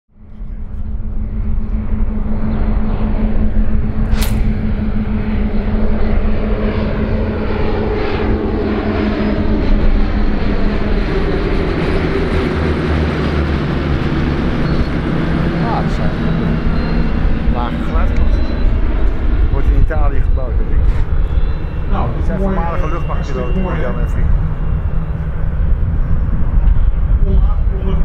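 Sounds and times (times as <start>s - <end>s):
propeller aircraft droning overhead: 0.1s - 28.0s
sharp click: 4.1s - 4.5s.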